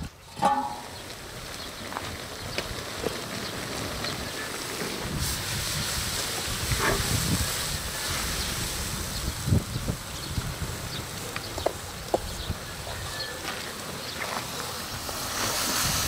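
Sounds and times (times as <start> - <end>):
food bubbling and sizzling: 0.2 - 13.0, 13.9 - 16.0
wind on microphone: 2.1 - 13.2, 14.9 - 16.0.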